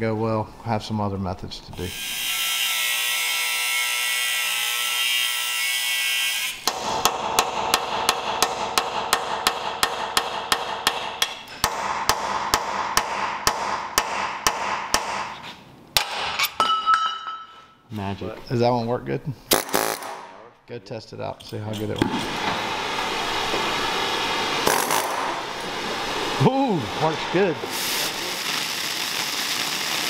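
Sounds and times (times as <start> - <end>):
angle grinder cutting steel: 1.9 - 6.6
hammer striking metal punch: 6.6 - 15.4.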